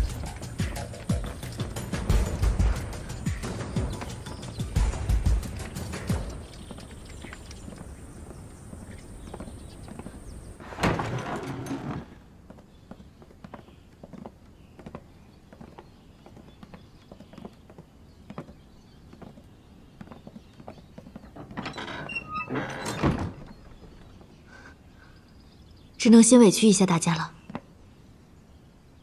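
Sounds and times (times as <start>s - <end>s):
footsteps on wooden floor: 0.1s - 22.6s
wooden door thunk: 10.6s - 12.1s, 21.2s - 24.0s
door scraping shut: 10.6s - 12.2s, 21.2s - 23.7s.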